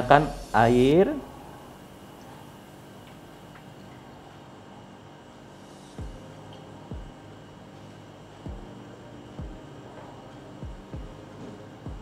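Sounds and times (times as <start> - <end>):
soft background music: 0.0 - 12.0
deep thumping beats: 6.0 - 6.3, 6.9 - 7.2, 8.5 - 8.8, 9.4 - 9.7, 10.6 - 12.0.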